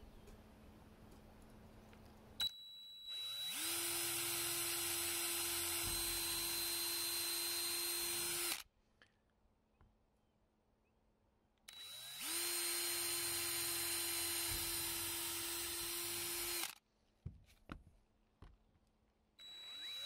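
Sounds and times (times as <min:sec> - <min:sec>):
cordless drill drilling: 0:03.0 - 0:08.6, 0:11.7 - 0:16.8, 0:19.4 - 0:20.0.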